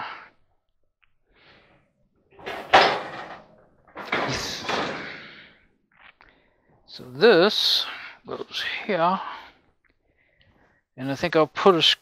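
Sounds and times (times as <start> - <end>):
metal rattling and scraping: 2.4 - 5.3.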